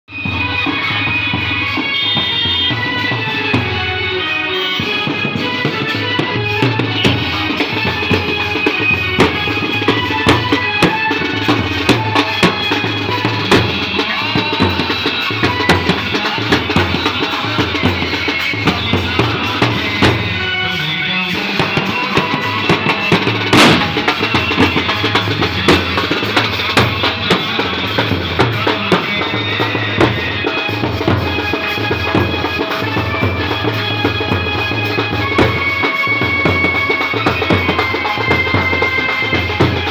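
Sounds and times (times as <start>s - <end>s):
band melody: 0.1s - 39.9s
snare drum: 21.6s - 39.9s
bass drums beating: 23.3s - 28.9s.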